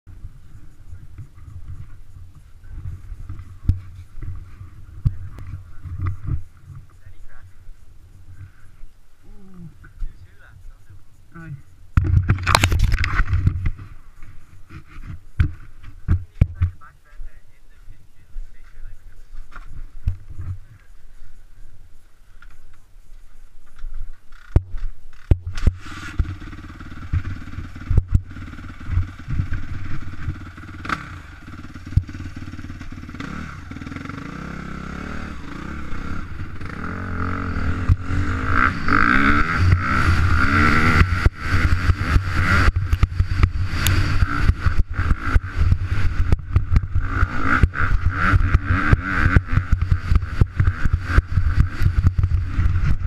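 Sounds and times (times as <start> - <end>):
motocross bike engine revving: 0.1 - 10.5, 24.3 - 53.0.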